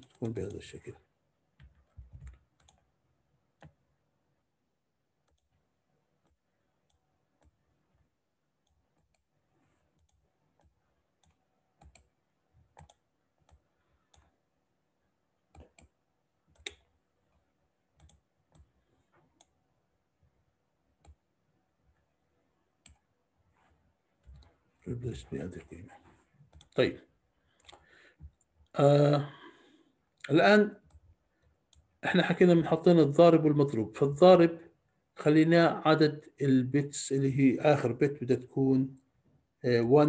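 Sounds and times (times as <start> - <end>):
mouse and keyboard clicks: 12.8 - 14.3.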